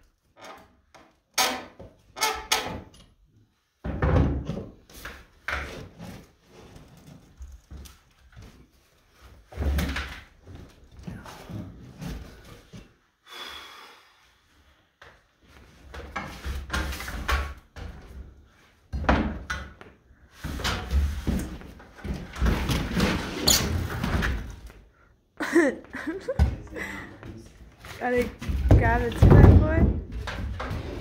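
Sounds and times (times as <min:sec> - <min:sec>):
wood knocking and creaking: 0:28.2 - 0:31.0.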